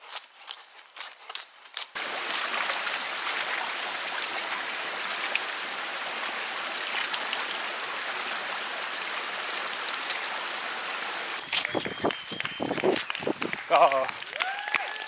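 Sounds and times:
footsteps: 0:00.0 - 0:04.5, 0:11.4 - 0:14.5
rushing water: 0:02.0 - 0:15.0.

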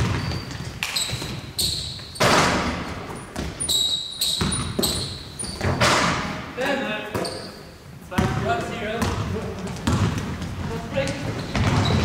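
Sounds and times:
short high squeaks: 0:00.1 - 0:02.4, 0:03.6 - 0:05.8.

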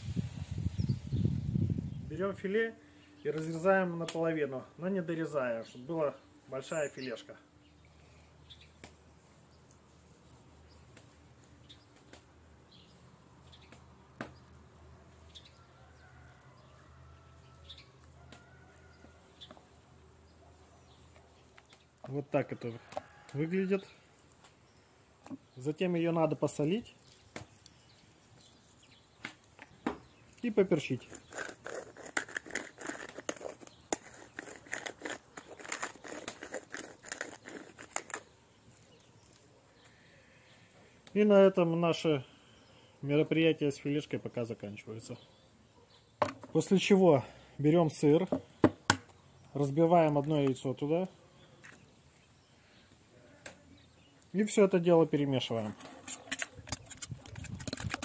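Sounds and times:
pepper mill grinding: 0:30.9 - 0:38.2, 0:56.0 - 0:58.0.

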